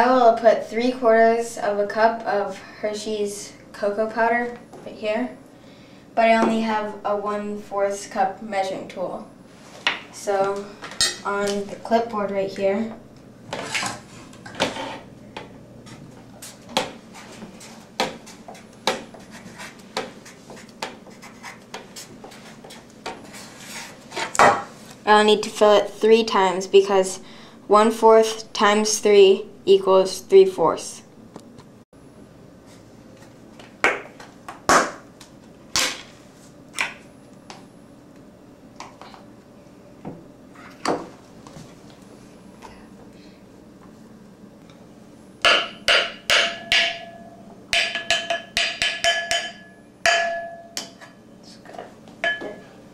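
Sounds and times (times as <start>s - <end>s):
marker writing on paper: 19.3s - 22.8s.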